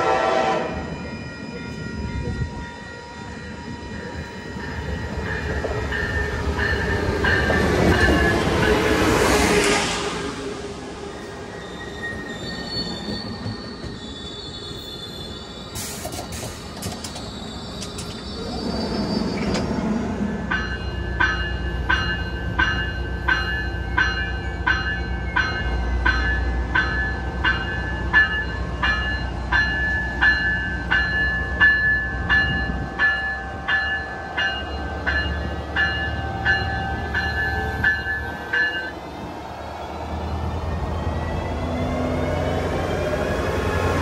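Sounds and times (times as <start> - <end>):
crossing warning bell dinging: 0.0 - 9.3, 15.4 - 39.3
train rumble: 0.0 - 11.6.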